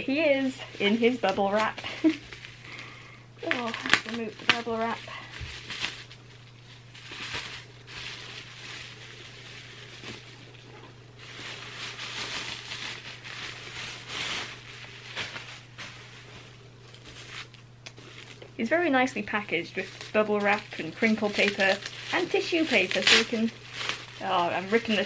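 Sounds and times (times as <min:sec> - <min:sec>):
bubble wrap rustling and crinkling: 0:00.0 - 0:25.0
steady low hum: 0:00.0 - 0:25.0.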